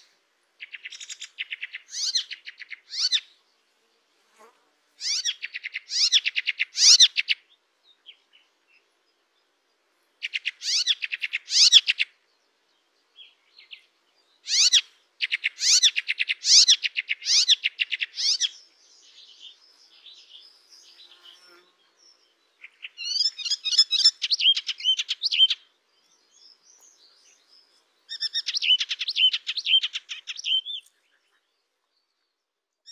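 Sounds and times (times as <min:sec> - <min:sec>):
soft bird twittering: 0:00.0 - 0:03.4, 0:10.2 - 0:32.9
warbler singing chattering phrases: 0:00.6 - 0:03.4, 0:05.0 - 0:08.8, 0:10.2 - 0:12.2, 0:13.2 - 0:31.6.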